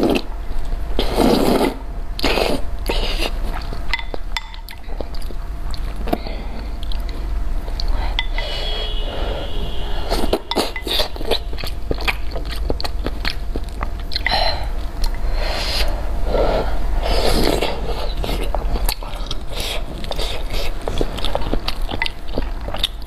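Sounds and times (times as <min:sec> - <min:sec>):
noodle slurping: 0:01.0 - 0:03.4
wet chewing: 0:10.1 - 0:15.2, 0:17.1 - 0:23.0.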